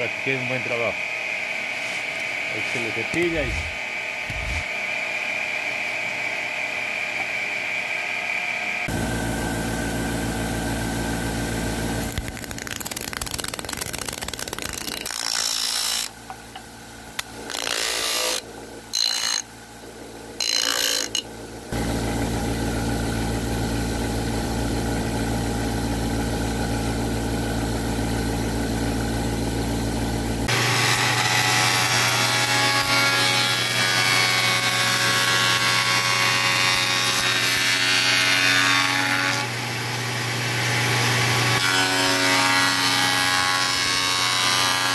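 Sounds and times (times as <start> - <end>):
sanding disc humming: 0.2 - 4.9, 8.8 - 16.5, 17.3 - 25.1
spindle moulder cutting wood: 2.7 - 4.7, 12.1 - 16.2, 20.4 - 21.2.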